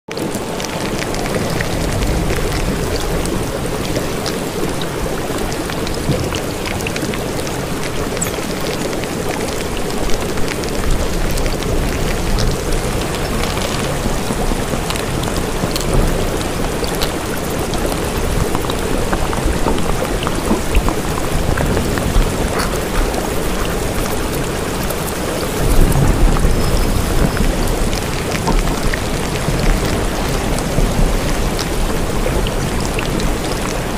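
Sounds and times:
steady rain hiss: 0.1s - 33.9s
low rumble of thunder: 10.7s - 33.4s.

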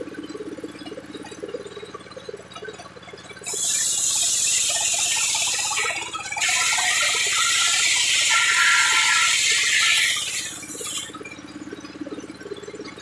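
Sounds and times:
circular saw cutting wood: 3.4s - 11.1s
saw drive humming: 3.4s - 11.2s.

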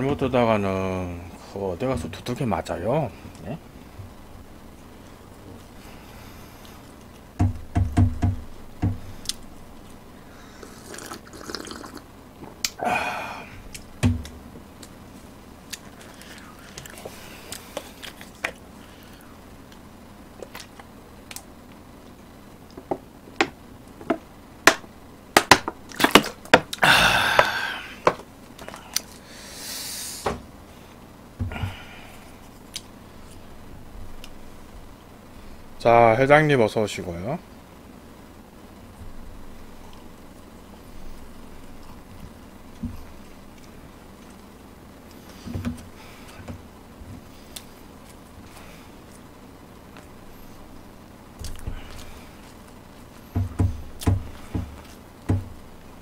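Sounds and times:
wet slurping: 10.6s - 12.0s.

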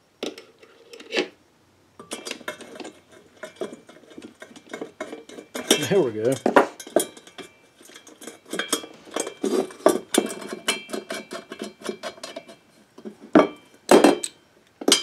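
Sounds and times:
metal hardware clinking: 2.0s - 12.5s.

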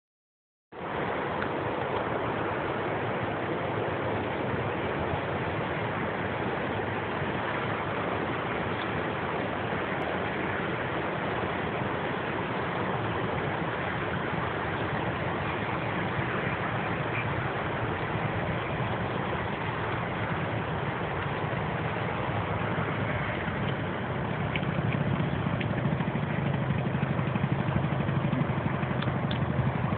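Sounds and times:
scooter engine running: 12.8s - 29.9s.

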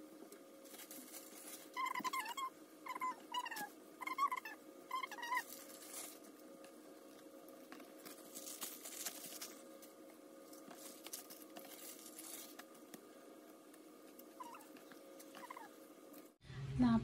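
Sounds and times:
faint steady hum: 0.0s - 17.0s
plastic gloves rustling: 0.3s - 2.5s, 4.9s - 16.4s.

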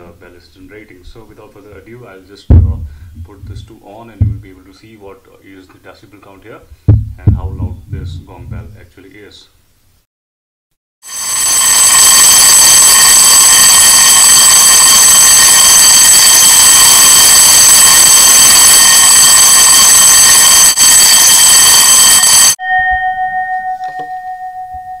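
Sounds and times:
metal dome ringing on: 2.5s - 4.5s, 22.6s - 25.0s
electric bell ringing loudly: 11.0s - 25.0s.

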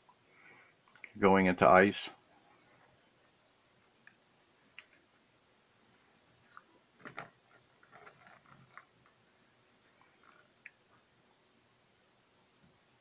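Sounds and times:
faint clicks and crackling: 0.8s - 1.2s, 4.0s - 5.2s, 5.9s - 9.2s, 9.8s - 11.0s.

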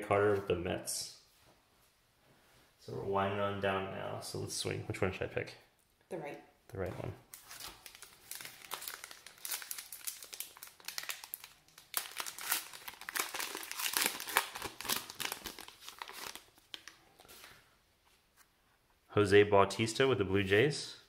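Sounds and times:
wrapper crinkling and tearing: 7.3s - 17.3s.

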